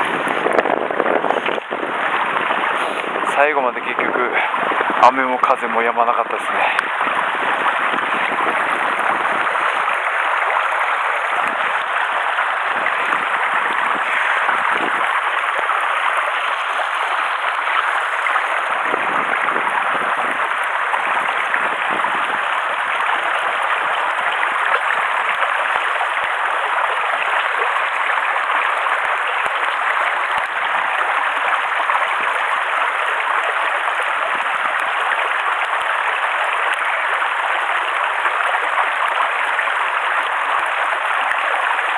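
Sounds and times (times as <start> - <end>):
wind buffeting microphone: 0.0 - 23.8
mountain stream rushing: 0.0 - 41.9.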